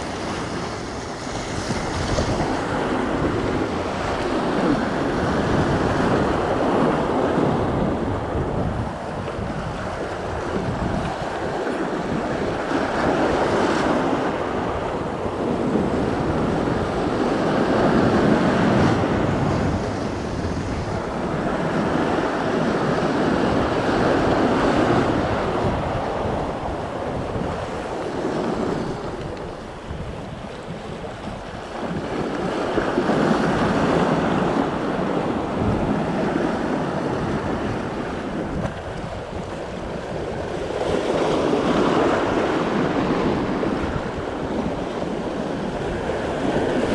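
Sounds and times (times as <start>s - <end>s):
wind buffeting microphone: 0.0s - 46.9s.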